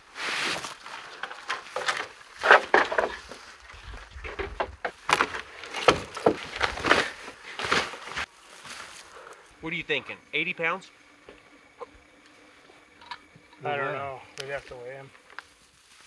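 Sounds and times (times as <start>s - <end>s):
rustling: 0.0s - 10.0s, 10.9s - 16.0s
wooden poles knocking together: 1.1s - 3.4s, 4.2s - 8.0s.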